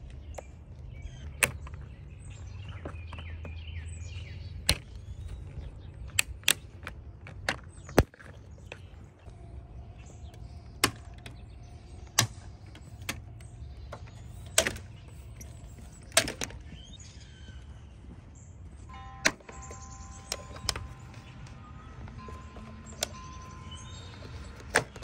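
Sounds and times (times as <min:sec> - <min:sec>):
plastic clips clicking and snapping: 0:04.6 - 0:08.4, 0:10.3 - 0:16.7, 0:24.1 - 0:25.0.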